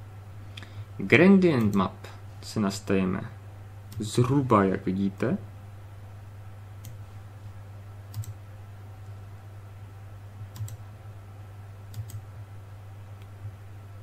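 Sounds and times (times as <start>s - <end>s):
computer mouse clicks: 6.8s - 7.0s, 8.1s - 8.4s, 10.5s - 10.8s, 11.9s - 12.2s.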